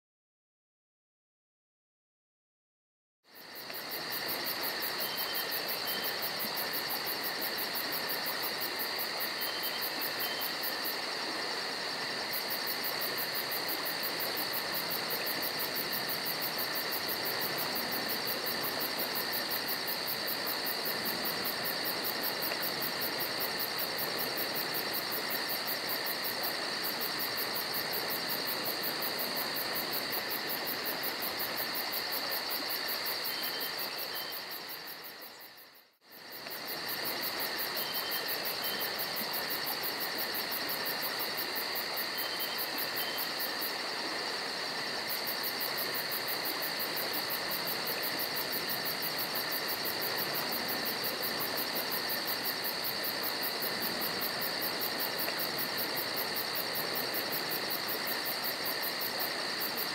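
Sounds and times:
crickets trilling: 0:03.3 - 0:59.9.

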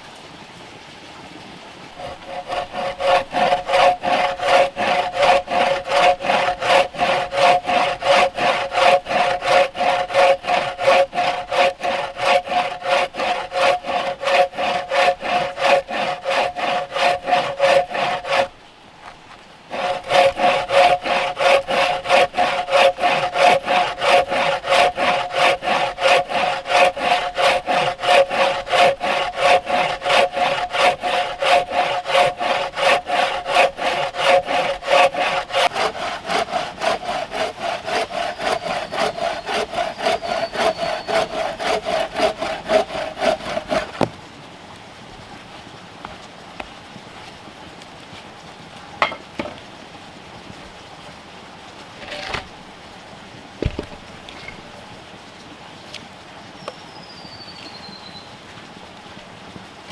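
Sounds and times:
bow saw cutting log: 0:02.0 - 0:44.2, 0:52.0 - 0:52.5.

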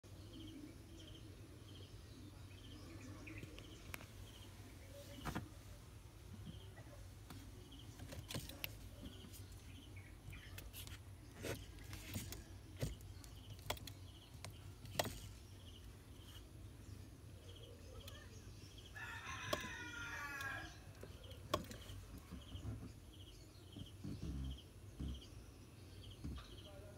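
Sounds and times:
rooster crowing: 0:19.0 - 0:20.8.

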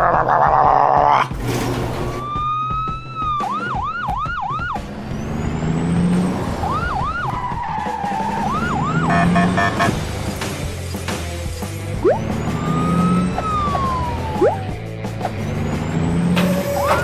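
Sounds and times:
police siren yelping: 0:02.2 - 0:04.8, 0:06.6 - 0:09.9, 0:12.0 - 0:14.8, 0:16.4 - 0:17.0.

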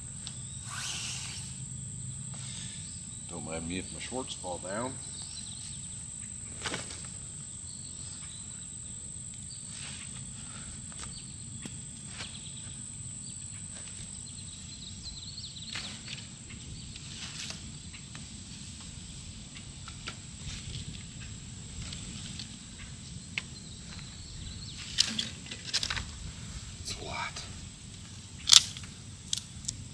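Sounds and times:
high-pitched insect drone: 0:00.0 - 0:26.1
short bird chirps: 0:00.5 - 0:01.6.

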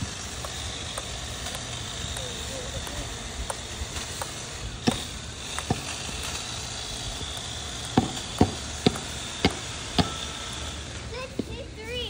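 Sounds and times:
sharp knocks: 0:04.2 - 0:05.9, 0:07.3 - 0:10.2.

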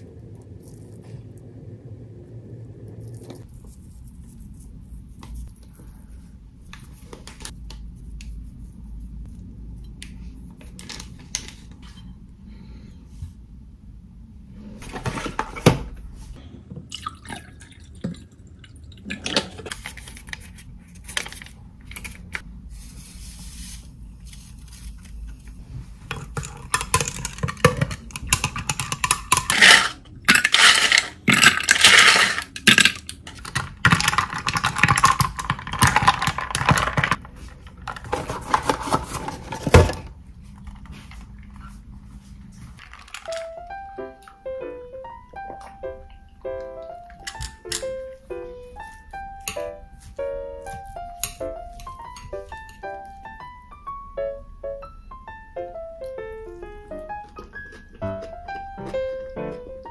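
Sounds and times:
drink swirling and fizzing: 0:16.9 - 0:19.7.

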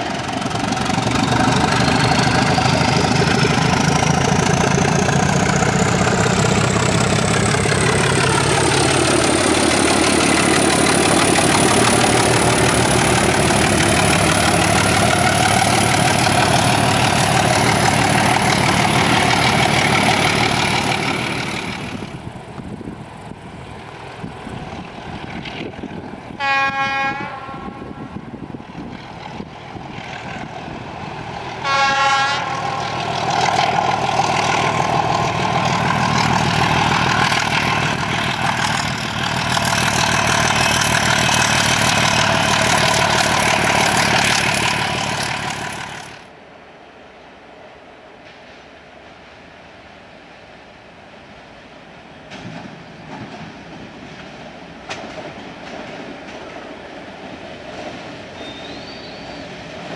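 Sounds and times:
diesel locomotive engine working hard: 0:00.0 - 0:46.4, 0:51.5 - 0:59.9
locomotive horn blasts: 0:26.4 - 0:28.2, 0:31.6 - 0:33.0.

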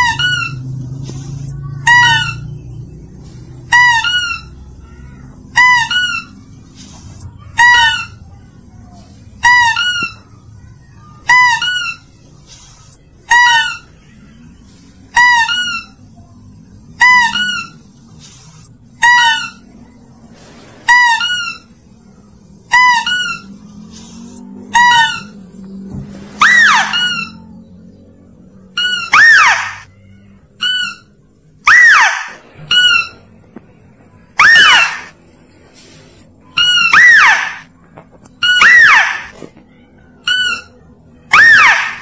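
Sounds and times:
two-note chirping call: 0:26.4 - 0:27.8, 0:28.6 - 0:29.9, 0:34.4 - 0:35.1.

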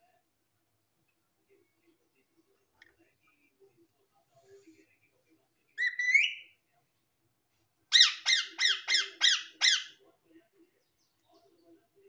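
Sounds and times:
parakeet harsh squawks: 0:05.8 - 0:06.5, 0:07.9 - 0:10.0.

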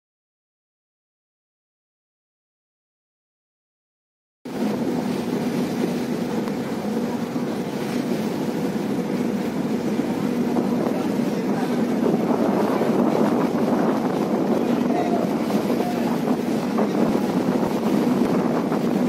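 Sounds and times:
ship engine drone: 0:04.5 - 0:19.0.

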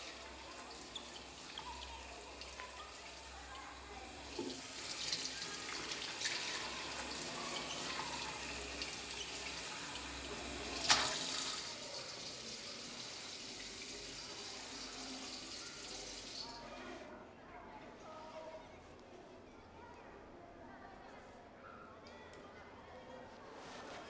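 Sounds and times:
tap water running into sink: 0:00.0 - 0:16.5.

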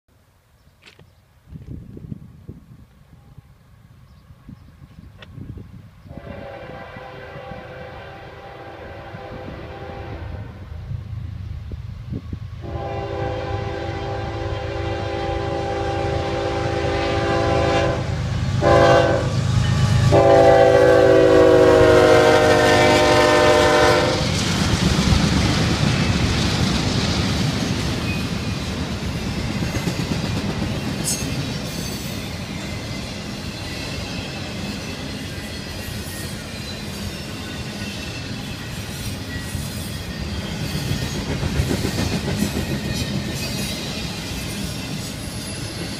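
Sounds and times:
train rumbling and clattering on rails: 0:00.8 - 0:45.9
locomotive air horn blasts: 0:06.1 - 0:10.8, 0:12.6 - 0:24.3.

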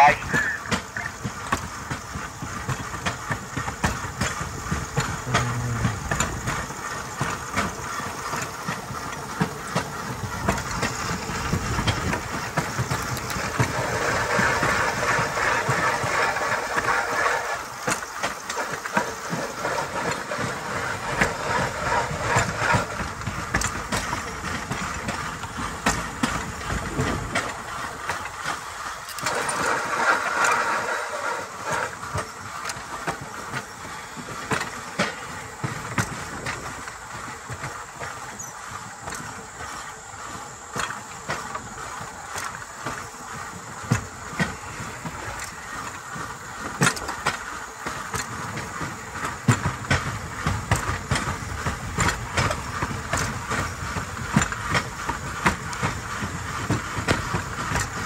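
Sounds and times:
sharp clicks and clacks: 0:00.0 - 0:58.0
steel wheels rolling on rail track: 0:00.0 - 0:58.0.

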